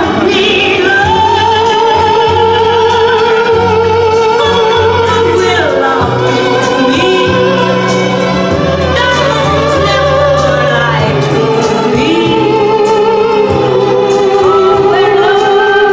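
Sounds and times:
music with singing: 0.0 - 15.9.

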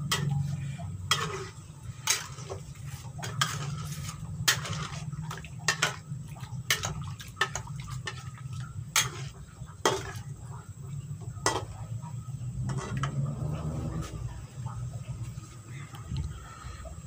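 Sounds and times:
metal spatula scraping a pan: 0.0 - 6.1, 6.7 - 10.5, 12.4 - 14.4
steady low hum: 0.0 - 17.0.

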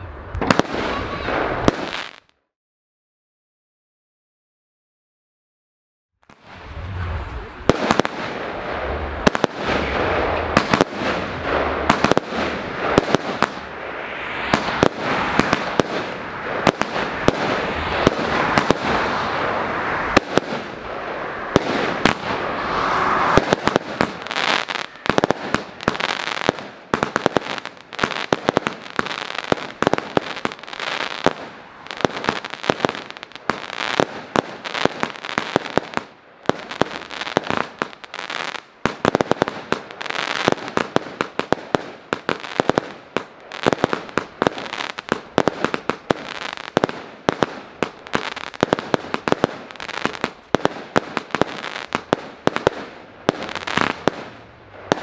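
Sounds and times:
fireworks launch and burst reports: 0.0 - 2.3, 6.3 - 38.1
crackling hiss: 6.2 - 55.0.

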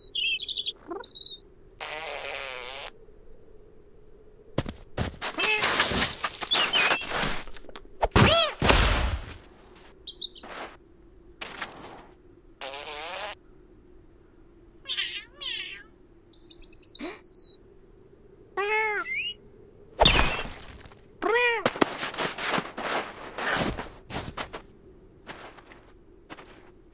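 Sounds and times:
bird chirping: 0.0 - 1.4, 6.4 - 7.1, 10.0 - 10.6, 14.9 - 17.6, 19.0 - 19.4
thuds in snow: 4.6 - 10.8, 21.6 - 26.7
cartoon cat meowing: 14.9 - 15.9, 18.6 - 19.4, 21.2 - 21.7.

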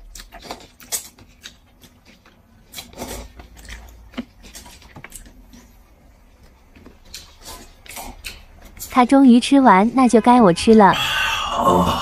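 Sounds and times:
chewing: 0.0 - 9.0.

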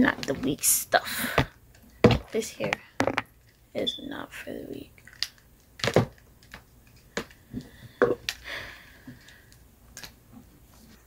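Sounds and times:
cord handling clicks and knocks: 1.7 - 3.3.

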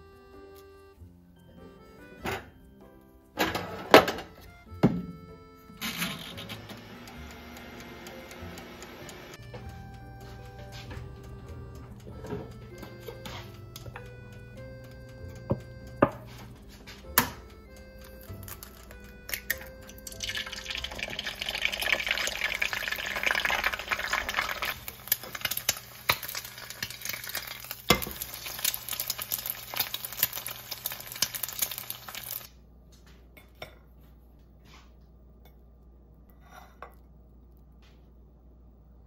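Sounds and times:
egg cracking: 16.9 - 32.5
egg sizzling in oil: 18.2 - 32.5.

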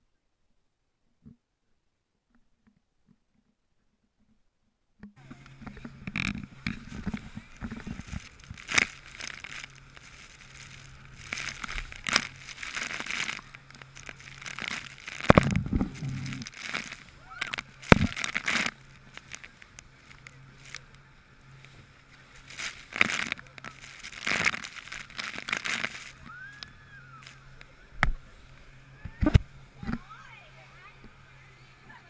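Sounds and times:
boat engine hum: 5.1 - 32.0.

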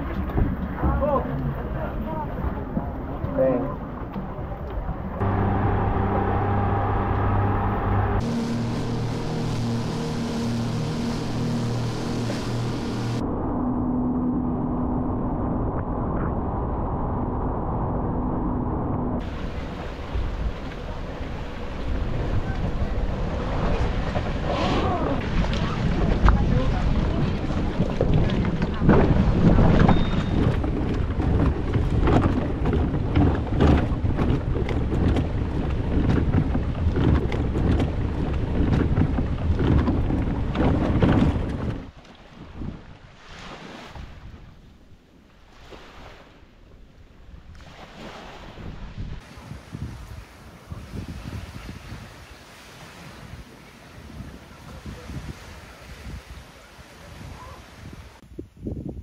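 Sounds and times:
water splashes: 0.0 - 13.2, 19.2 - 58.2
boat engine droning: 0.0 - 42.0
wind: 0.0 - 59.0
water spray: 8.2 - 13.2
irregular knocks: 28.9 - 41.9.

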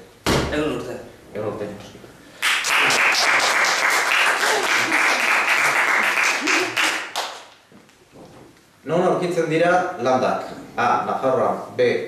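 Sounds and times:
applause: 2.4 - 7.6.

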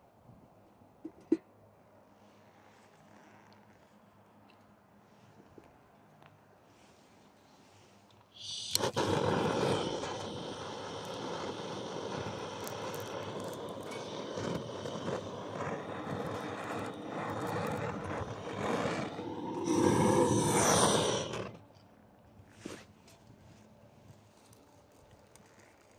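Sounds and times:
blowtorch flame hissing: 8.3 - 21.7.

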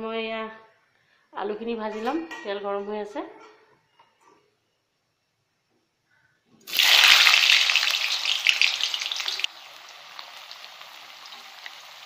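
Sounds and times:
potatoes sizzling in hot oil: 6.7 - 12.0.

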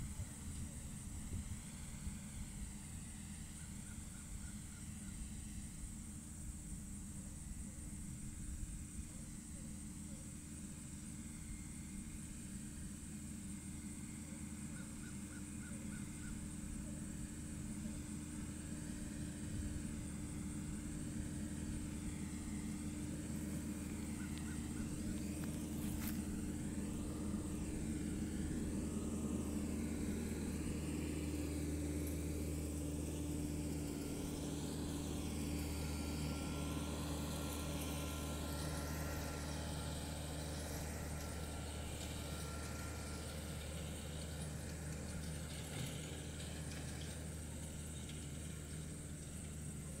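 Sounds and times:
tractor engine under load: 17.5 - 50.0.

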